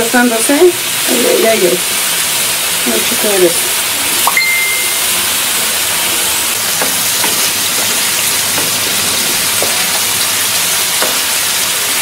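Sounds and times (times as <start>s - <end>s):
food sizzling in hot oil: 0.0s - 12.0s
oil popping: 6.4s - 12.0s.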